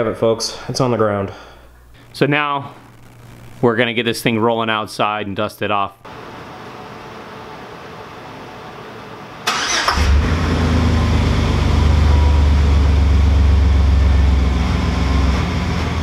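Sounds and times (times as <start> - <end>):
pickup engine starting and idling: 9.5 - 16.0.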